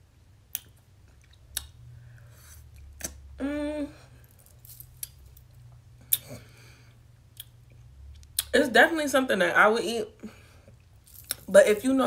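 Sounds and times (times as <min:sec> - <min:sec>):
person humming: 0:03.4 - 0:04.1.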